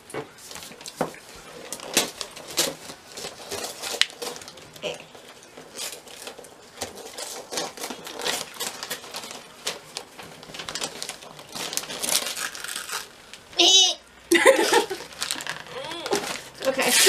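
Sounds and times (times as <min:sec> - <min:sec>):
wrapping paper tearing: 0:00.4 - 0:13.6, 0:14.5 - 0:17.0.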